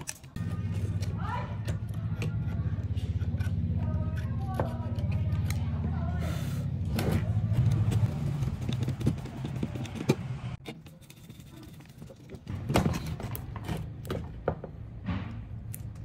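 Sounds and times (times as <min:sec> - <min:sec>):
screwdriver clicking and scraping: 0:08.6 - 0:14.1.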